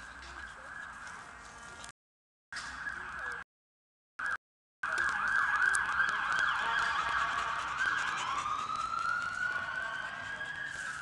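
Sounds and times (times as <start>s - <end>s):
siren yelping and wailing: 2.6s - 3.4s, 4.2s - 11.0s.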